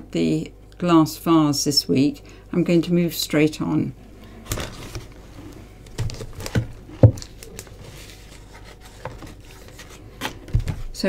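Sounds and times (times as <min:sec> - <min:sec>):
paper rustling: 0:04.4 - 0:10.9.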